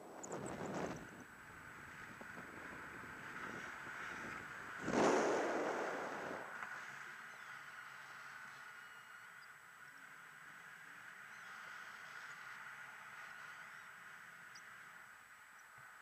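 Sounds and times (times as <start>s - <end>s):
air rushing over microphone: 2.4s - 6.6s.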